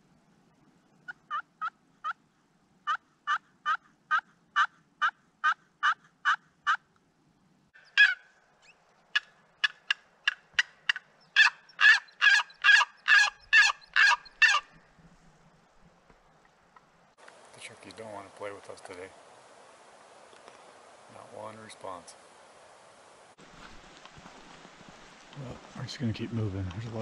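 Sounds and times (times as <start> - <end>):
turkey call yelps: 1.1 - 2.2, 2.8 - 6.9, 7.8 - 14.8.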